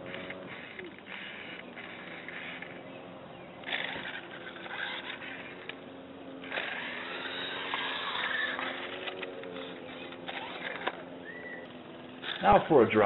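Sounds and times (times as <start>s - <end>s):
toy car motor whirring: 0.0s - 13.0s
small clicks: 6.4s - 12.5s.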